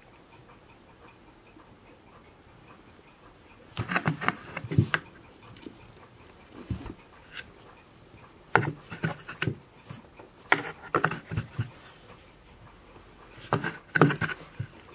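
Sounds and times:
cat pawing inside cardboard box: 3.8s - 5.0s, 10.5s - 11.9s, 13.4s - 14.8s.

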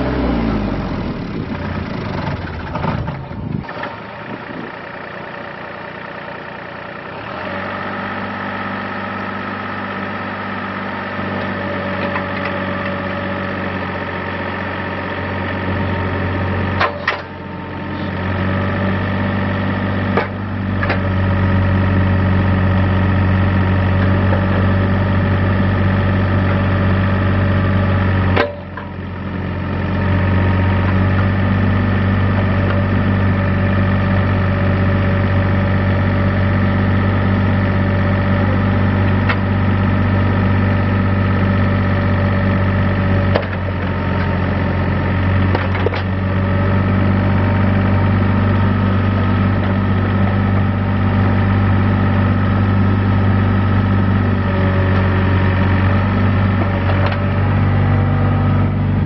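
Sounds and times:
excavator diesel engine: 0.0s - 59.0s.

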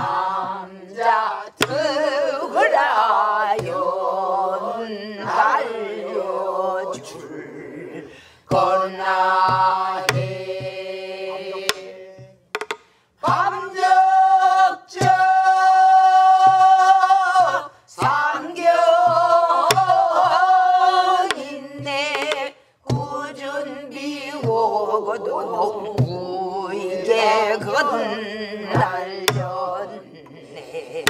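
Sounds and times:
barrel drum thumps: 0.0s - 2.1s, 8.5s - 14.1s, 14.9s - 23.3s
group singing folk song: 0.0s - 31.0s
drum stick clicks: 12.6s - 12.9s.

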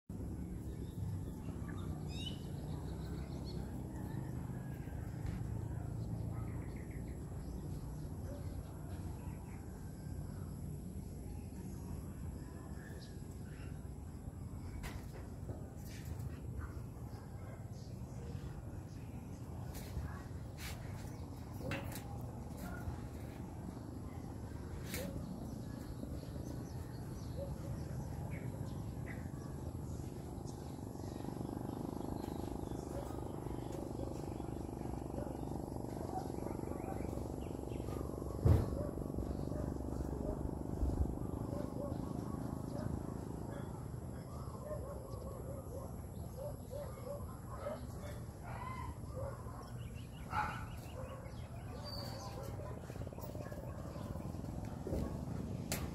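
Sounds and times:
birds chirping: 0.1s - 55.9s
steady low rumble: 16.4s - 44.3s.

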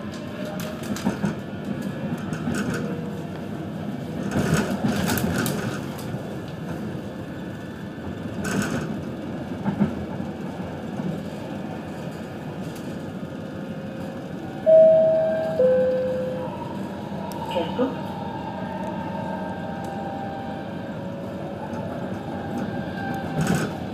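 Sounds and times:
train rumbling on track: 0.0s - 23.9s
two-note falling chime: 14.7s - 16.6s.

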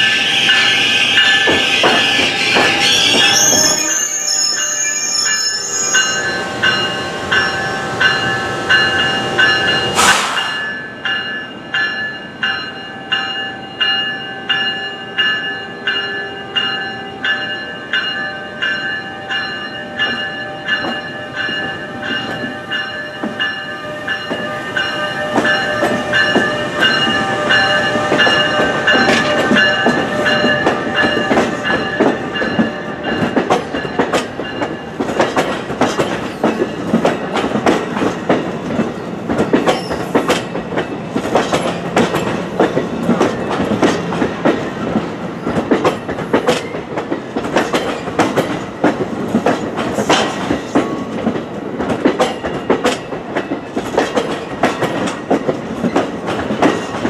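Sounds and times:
electric train rolling past: 0.0s - 57.0s
wheels squealing: 0.2s - 7.6s.

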